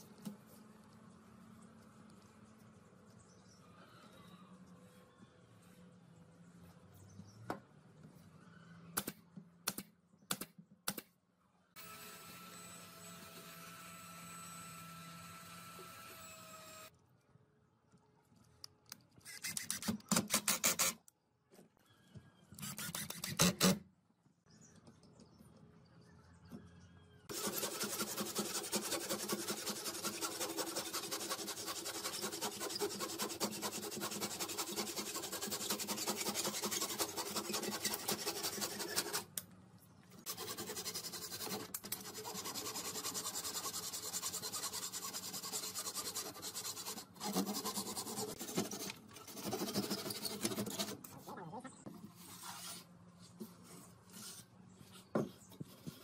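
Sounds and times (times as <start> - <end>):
handsaw cutting wood: 22.6 - 23.8, 27.3 - 39.3, 40.2 - 51.1.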